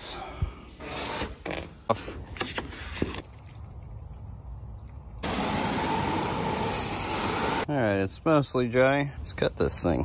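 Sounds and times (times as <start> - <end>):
hose nozzle spraying water: 5.2 - 7.7.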